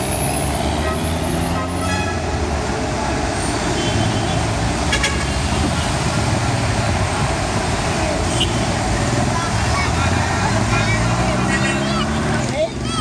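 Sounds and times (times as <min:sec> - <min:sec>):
road traffic: 0:00.0 - 0:13.0
vehicle horn toot: 0:00.8 - 0:02.2, 0:03.7 - 0:05.5, 0:08.3 - 0:08.7.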